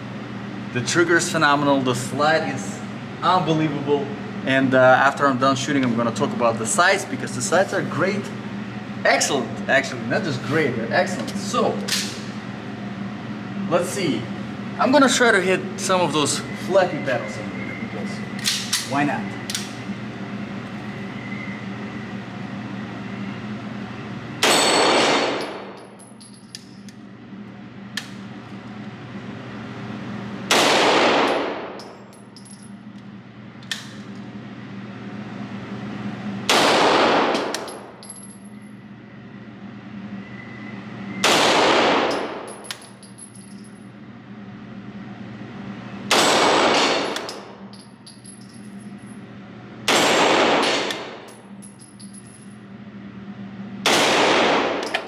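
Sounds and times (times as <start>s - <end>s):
pistol shots echoing: 24.4s - 25.7s, 30.5s - 31.8s, 41.2s - 42.5s, 53.8s - 54.9s.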